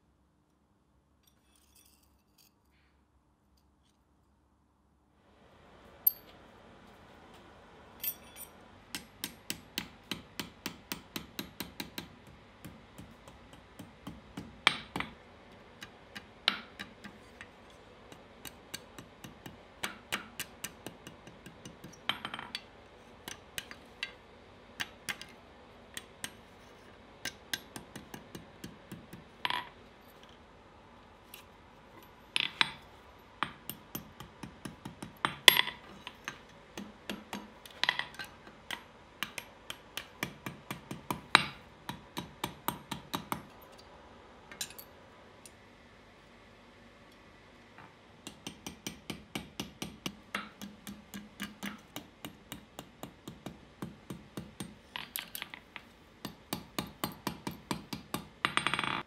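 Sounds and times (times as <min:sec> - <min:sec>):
hammer striking hot steel on anvil: 0:08.1 - 0:15.2, 0:33.4 - 0:43.5, 0:48.2 - 0:54.8.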